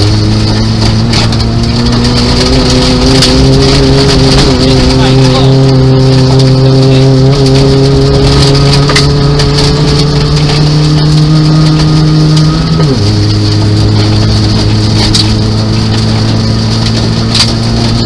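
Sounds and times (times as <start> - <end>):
car engine revving from inside: 0.0 - 18.0
gravel rattling under car: 0.0 - 18.0.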